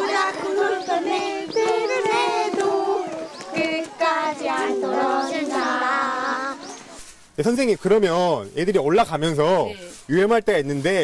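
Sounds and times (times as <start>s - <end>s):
children singing: 0.0s - 6.8s.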